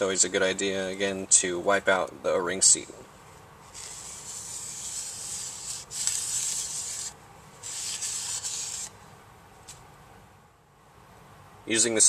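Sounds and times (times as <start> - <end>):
rag scrubbing inside metal pump: 3.8 - 8.9.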